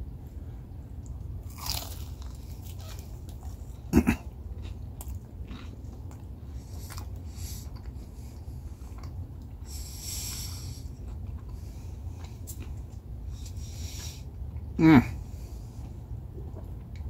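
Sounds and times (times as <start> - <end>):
steady low rumble: 0.0 - 17.0
crunchy taco crunching: 1.0 - 13.6
chewing: 1.0 - 14.7.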